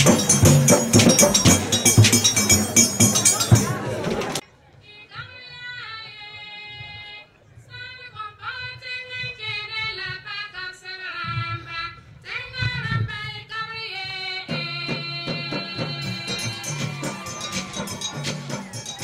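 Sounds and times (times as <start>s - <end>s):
women's choir singing: 15.5s - 19.0s.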